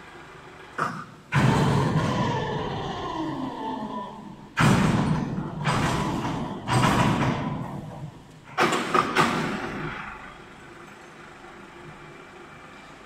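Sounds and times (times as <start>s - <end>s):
loud clattering bangs: 4.5s - 10.4s.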